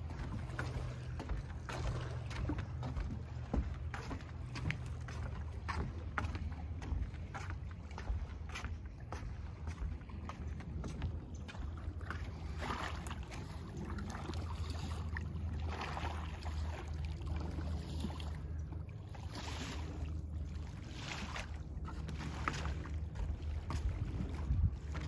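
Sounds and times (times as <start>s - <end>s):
waves lapping on rocky shore: 12.2s - 25.0s
wind rumbling on microphone: 20.8s - 25.0s.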